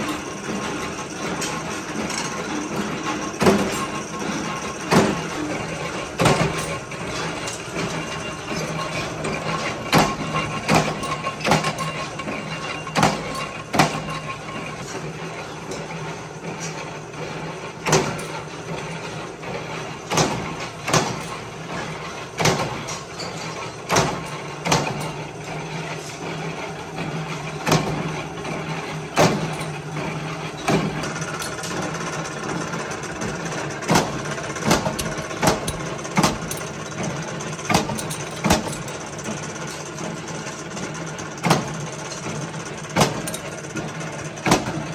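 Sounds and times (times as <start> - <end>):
press metallic clank: 0.0 - 15.0, 33.2 - 39.1
power press drone: 0.0 - 44.9.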